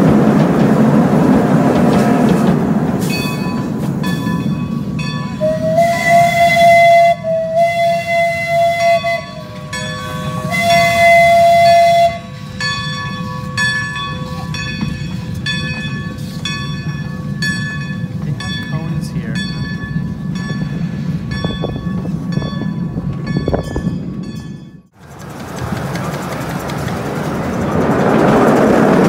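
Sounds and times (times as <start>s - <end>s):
rail clicks: 0.0s - 29.0s
train rumbling on rails: 0.0s - 29.0s
steam locomotive whistle: 5.1s - 13.7s.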